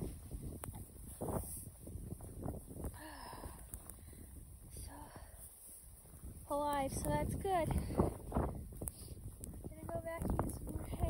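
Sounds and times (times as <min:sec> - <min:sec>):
crunching and rustling in snow: 0:00.0 - 0:11.0
person panting: 0:02.9 - 0:05.5.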